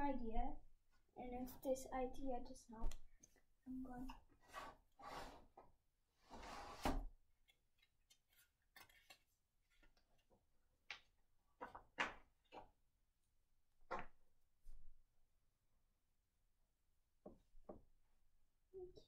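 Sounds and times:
paper sheets rustling: 7.8s - 12.7s.

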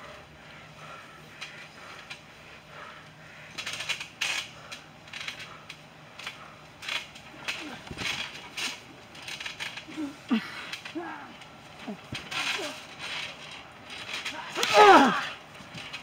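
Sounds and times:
trampoline springs creaking and clinking: 0.0s - 16.0s
person grunting: 9.9s - 12.0s, 14.4s - 15.3s.

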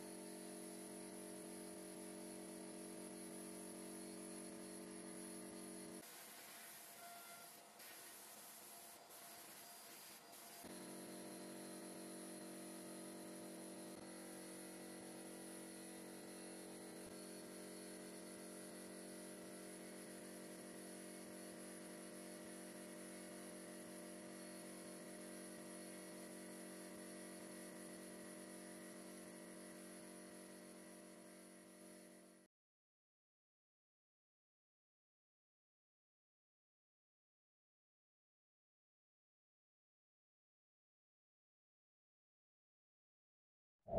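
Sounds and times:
hiss of blasting air: 7.8s - 10.6s.

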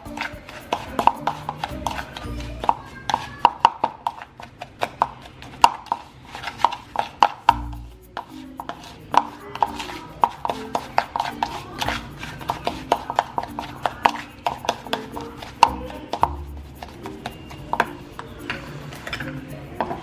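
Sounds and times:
spoon scraping plastic bowl: 0.0s - 20.0s.

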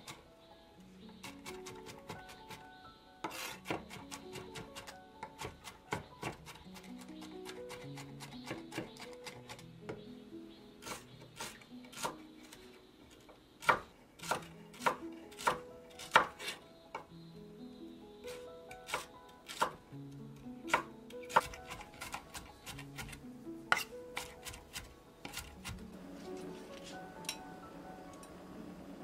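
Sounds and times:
knife chopping on wooden board: 3.2s - 10.0s, 13.6s - 16.6s, 18.8s - 19.8s, 20.7s - 25.8s.

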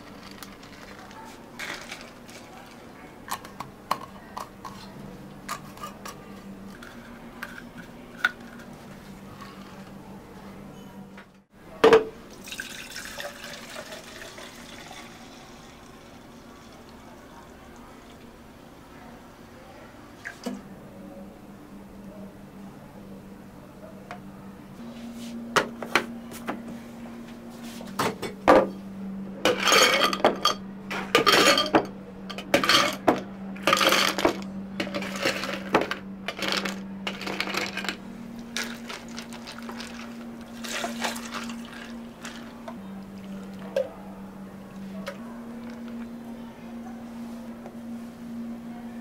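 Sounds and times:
low hum of cafe equipment: 0.0s - 49.0s
liquid being poured: 12.4s - 17.0s
cups and utensils clinking: 29.5s - 38.0s, 38.6s - 42.8s.

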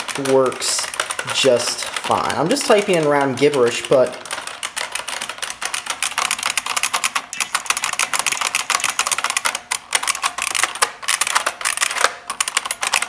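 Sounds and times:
fast keyboard typing clicks: 0.0s - 13.0s.

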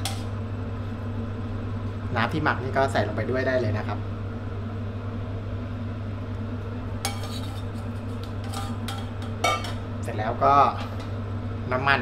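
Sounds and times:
steady low hum: 0.0s - 12.0s
utensils clinking against a pan: 7.1s - 9.8s.

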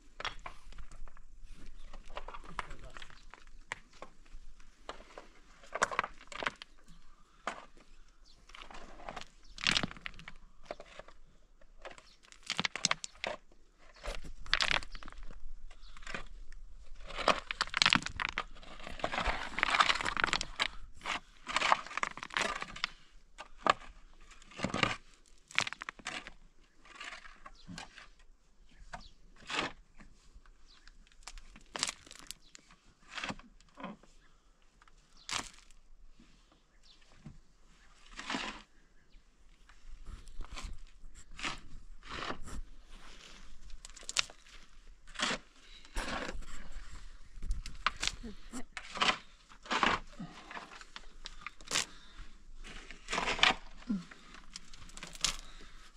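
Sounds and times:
shovel scraping gravelly earth: 8.6s - 11.2s, 11.8s - 28.2s, 38.0s - 38.8s, 39.6s - 55.9s.

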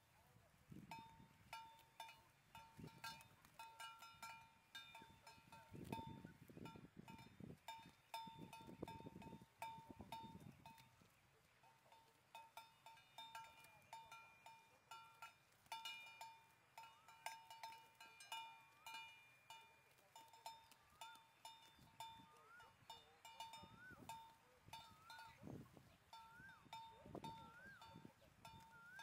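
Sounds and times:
cattle bells clanking: 0.9s - 10.9s, 11.7s - 29.0s
whistled call: 22.2s - 22.9s, 23.6s - 25.4s, 26.2s - 29.0s.

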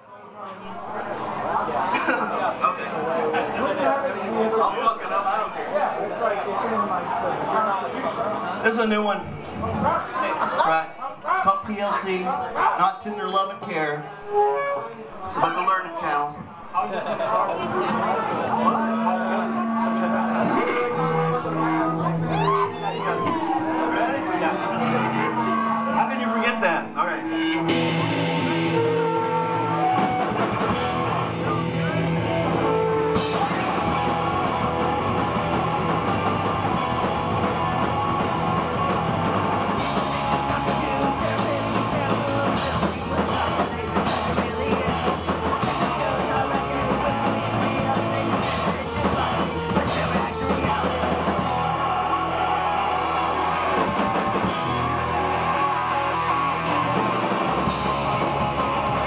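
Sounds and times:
live rock band playing: 13.1s - 15.6s, 16.4s - 59.0s.

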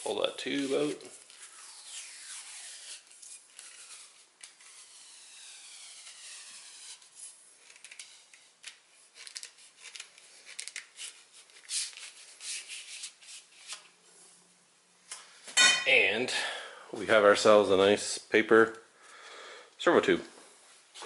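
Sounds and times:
squeaky rubbing of paper tube: 0.6s - 13.8s.

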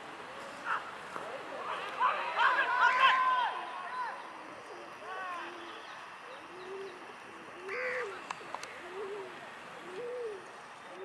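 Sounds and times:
bird cooing: 0.0s - 1.8s, 4.1s - 11.0s.

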